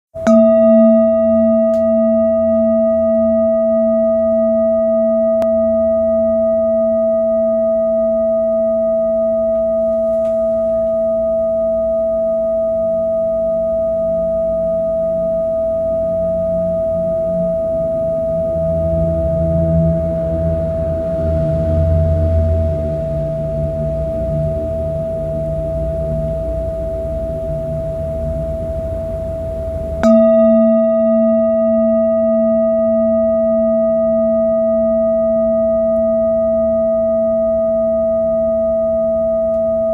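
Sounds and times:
singing bowl ringing: 0.2 - 39.9
low rumble: 14.2 - 39.9.

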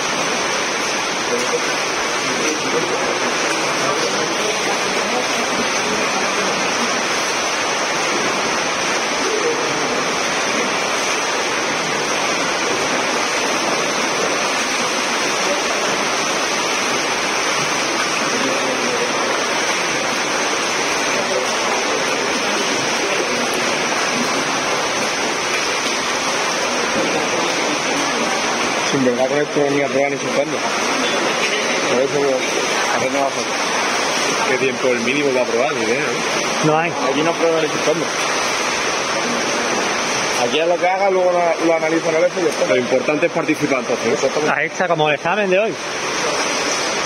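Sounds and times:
swimmers splashing water: 0.0 - 47.0.

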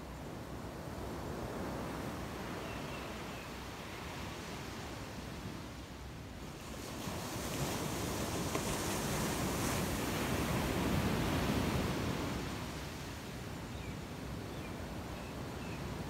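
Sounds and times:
waves washing onto beach: 3.8 - 13.6.

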